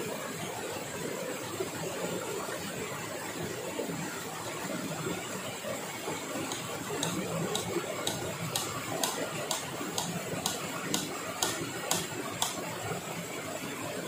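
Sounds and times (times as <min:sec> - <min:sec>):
sharp even knocks: 0:06.5 - 0:12.6.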